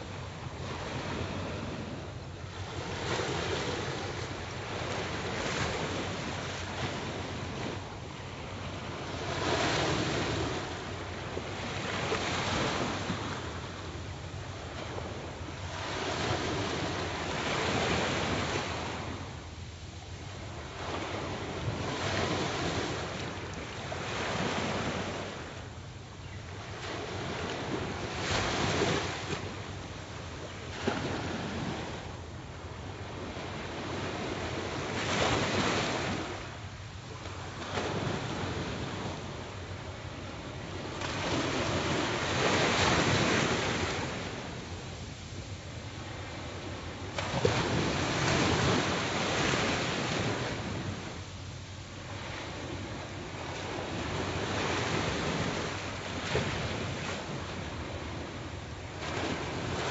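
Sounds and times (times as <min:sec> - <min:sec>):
wind rumbling on microphone: 0:00.0 - 0:19.4
river waves lapping on shore: 0:00.0 - 0:59.9.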